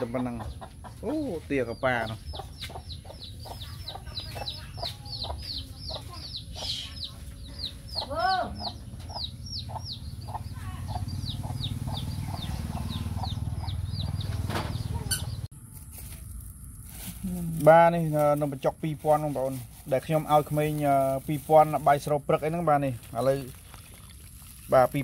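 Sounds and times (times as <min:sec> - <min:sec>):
hen clucking softly: 0:00.0 - 0:14.3
chicks peeping: 0:00.0 - 0:15.5.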